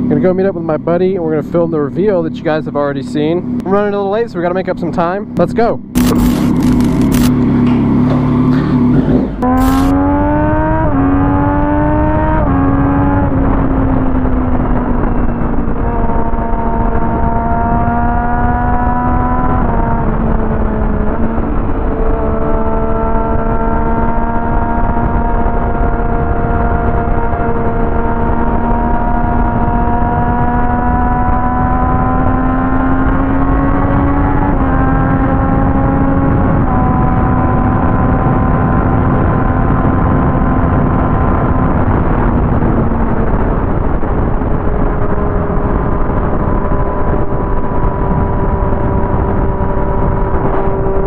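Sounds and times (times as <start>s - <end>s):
motorcycle engine running: 0.0s - 51.0s
wind noise: 0.0s - 51.0s.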